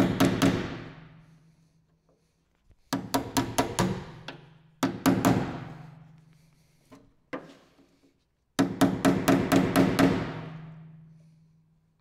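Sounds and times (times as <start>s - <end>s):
hammer striking chisel on metal: 2.9s - 5.9s, 8.6s - 10.7s.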